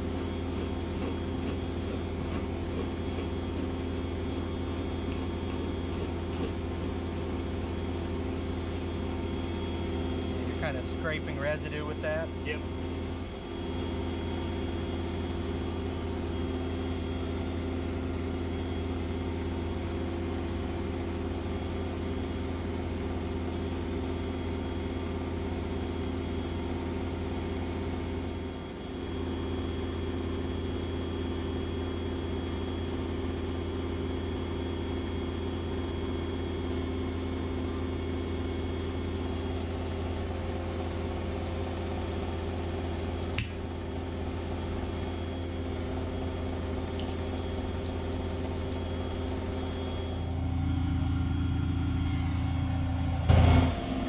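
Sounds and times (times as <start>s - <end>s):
engine idling: 0.0s - 22.8s, 35.2s - 54.0s.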